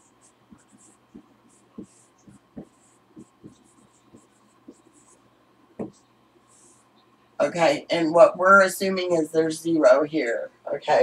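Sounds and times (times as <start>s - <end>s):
faint steady hum: 0.0s - 11.0s
marker squeaking on whiteboard: 0.1s - 5.2s.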